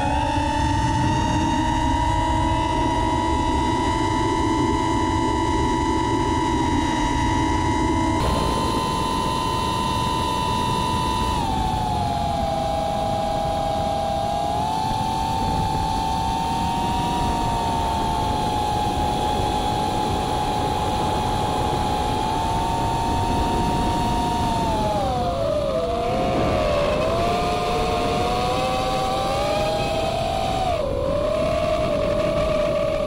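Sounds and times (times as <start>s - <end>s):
drone motors whining: 0.0s - 33.0s
propeller and wind noise: 0.0s - 33.0s.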